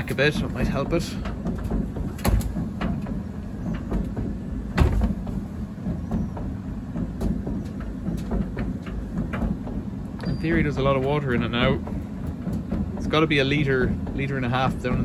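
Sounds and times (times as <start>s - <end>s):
tumble dryer low rumble: 0.0s - 15.0s
knocks of cabinet being tilted: 0.2s - 9.9s.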